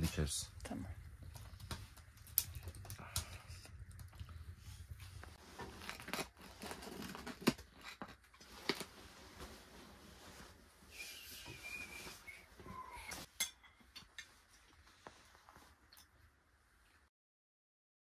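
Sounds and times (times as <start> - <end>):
rustling: 1.1 - 13.3
cutlery clinking on plates: 13.2 - 14.3.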